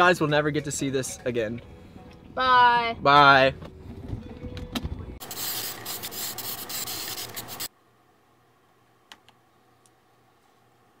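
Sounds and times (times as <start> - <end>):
aerosol spray can hissing: 5.2 - 7.7.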